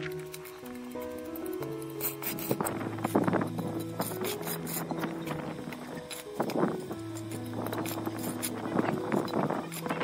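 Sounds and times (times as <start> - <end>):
background music with held notes: 0.0 - 10.0
trowel scraping mortar on bricks: 2.0 - 3.2, 3.8 - 10.0.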